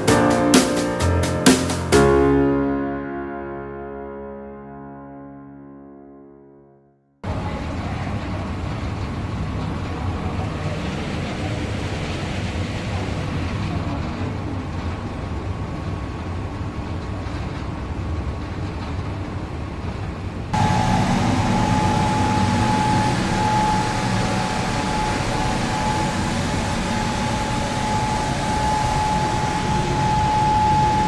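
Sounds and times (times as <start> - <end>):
high-pitched whine: 20.6 - 31.0
machine running with low hum: 20.6 - 31.0.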